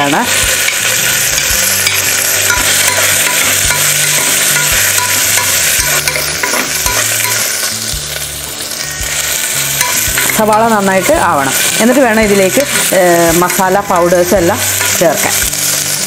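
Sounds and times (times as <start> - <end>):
onion sizzling in oil: 0.0 - 16.0
spoon stirring: 0.5 - 7.5.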